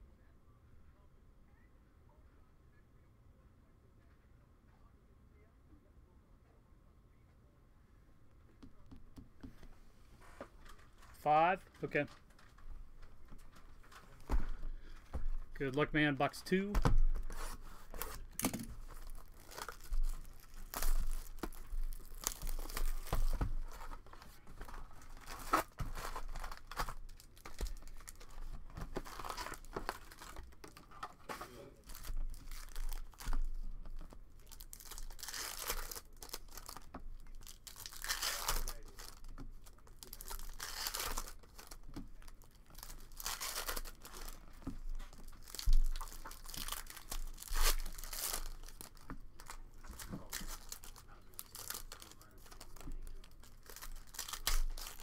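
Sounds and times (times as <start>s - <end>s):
foil crinkling and rustling: 16.8s - 55.0s
foil packs tearing: 17.2s - 33.6s, 34.4s - 55.0s.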